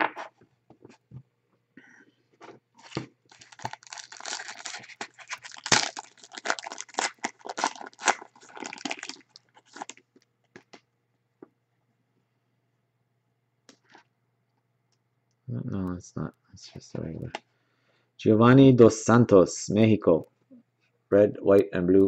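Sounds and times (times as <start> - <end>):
foil card pack crinkling: 2.8 - 10.0.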